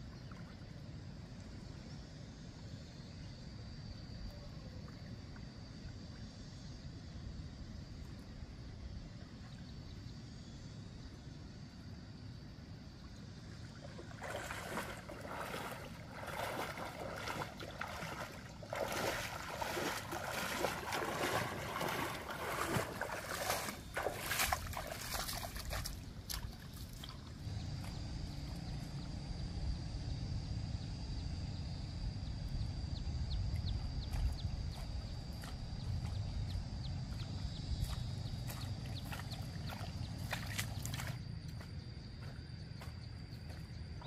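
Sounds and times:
water splashing and sloshing: 13.4 - 28.0, 37.2 - 44.0.

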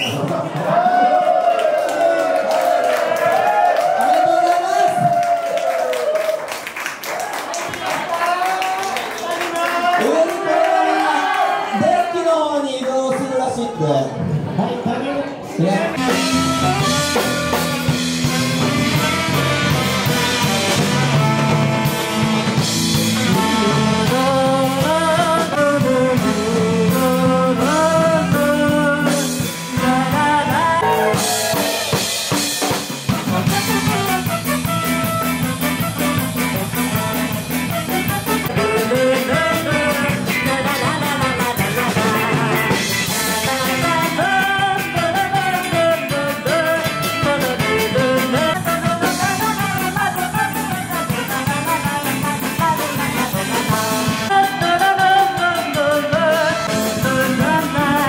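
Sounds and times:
guitar: 15.4 - 58.0
alto saxophone: 16.0 - 32.1, 33.0 - 58.0
drum kit: 16.0 - 58.0
trumpet: 16.0 - 58.0
woman singing into microphone: 23.3 - 31.6, 38.5 - 42.2, 43.2 - 58.0.

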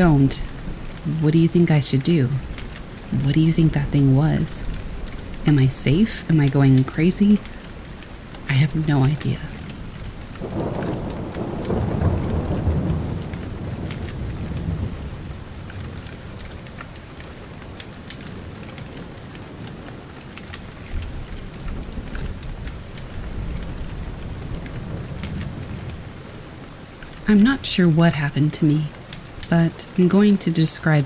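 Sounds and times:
steady rain: 0.0 - 31.0
rolling thunder: 9.5 - 16.6, 20.8 - 26.4.

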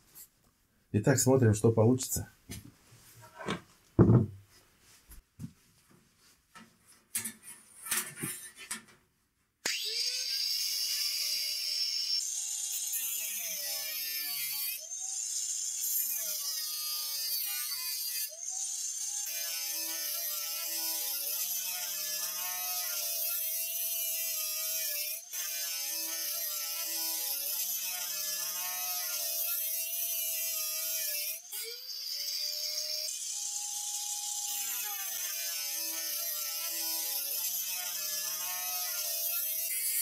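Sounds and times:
angle grinder cutting steel: 9.6 - 40.0.

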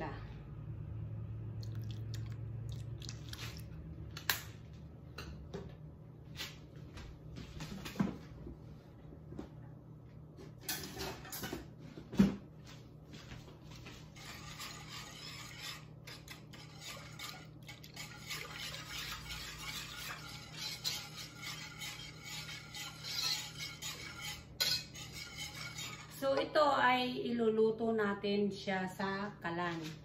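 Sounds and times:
whisk scraping pot: 13.3 - 26.5.

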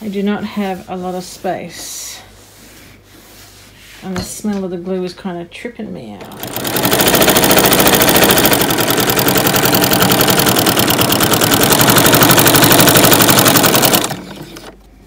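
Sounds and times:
sewing machine running fast: 6.3 - 14.8.

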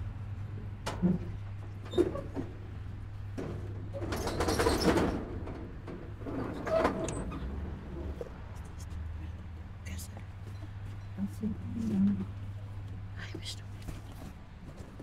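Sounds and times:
metal roller shutter rattling: 3.3 - 8.1.

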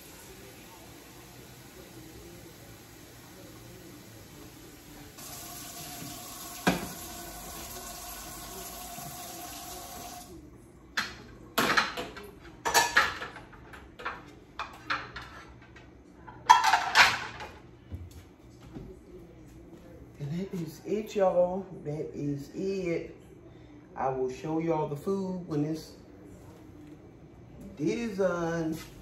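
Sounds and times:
tap water running: 0.0 - 10.4
dishes and pans clattering: 11.0 - 17.6.

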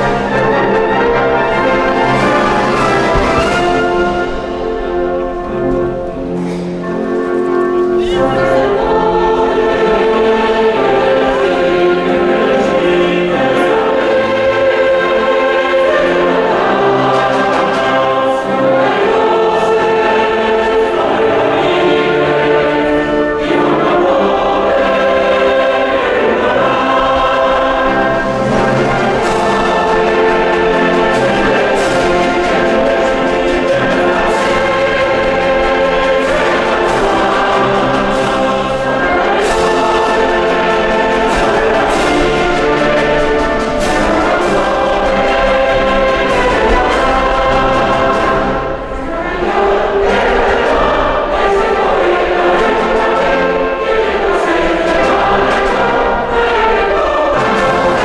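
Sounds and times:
choir with orchestra: 0.0 - 58.0.

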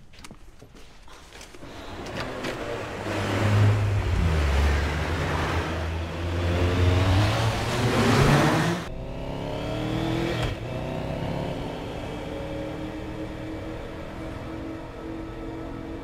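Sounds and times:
motorcycle engine revving: 1.8 - 15.8.

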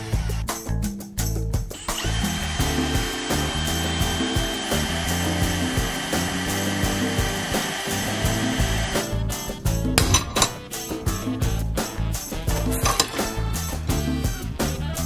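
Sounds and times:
cordless drill boring through metal: 0.0 - 0.4, 1.7 - 10.6, 12.5 - 13.6
music: 0.0 - 15.0.

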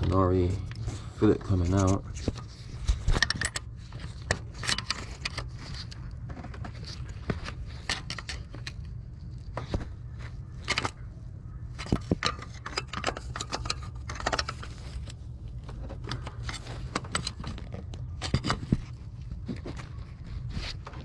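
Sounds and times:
steady low hum: 0.0 - 21.0
pry tool metal clicks and scrapes: 1.7 - 6.0, 11.7 - 15.2.

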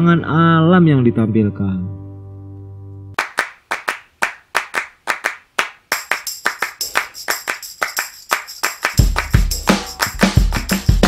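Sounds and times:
rhythmic hand-clap pattern: 3.2 - 11.0.

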